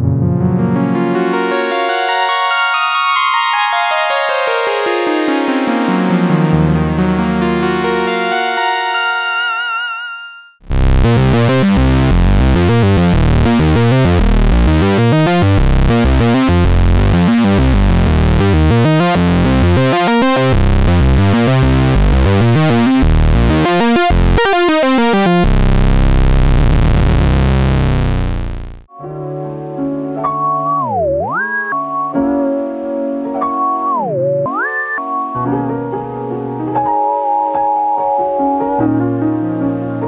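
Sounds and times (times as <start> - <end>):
synth bass notes: 10.6 - 28.9.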